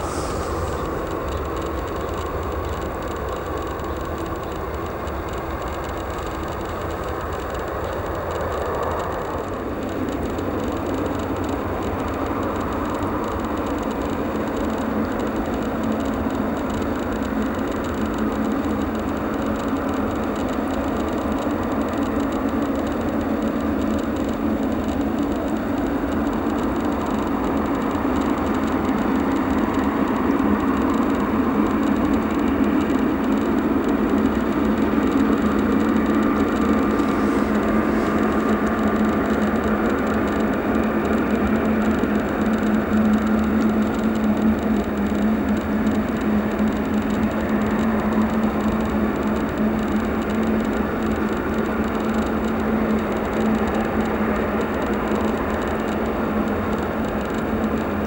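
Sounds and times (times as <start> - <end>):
jet engines rumbling: 0.0 - 5.7, 25.9 - 58.0
faint engine whine: 0.0 - 58.0.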